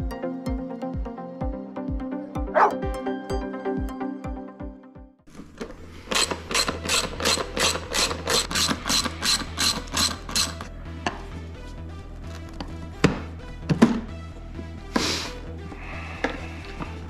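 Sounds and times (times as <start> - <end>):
socket ratchet clicking: 6.1 - 10.7.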